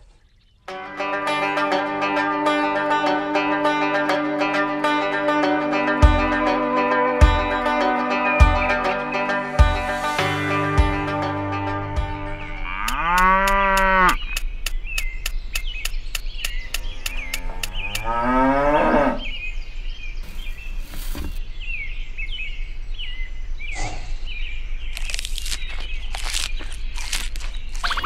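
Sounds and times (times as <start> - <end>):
cattle mooing: 12.6 - 14.2, 17.2 - 19.3
small chirps: 24.9 - 28.0.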